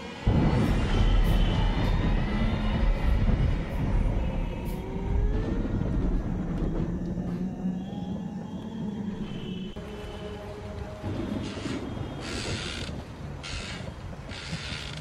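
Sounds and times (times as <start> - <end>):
low rumbling drone: 0.0 - 12.3
faint creaking sliding tones: 11.1 - 15.0.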